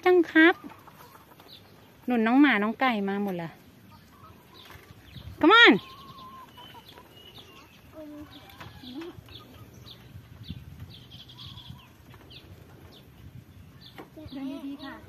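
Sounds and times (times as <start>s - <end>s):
small birds chirping: 0.0s - 15.0s
lower bird calls: 3.9s - 15.0s.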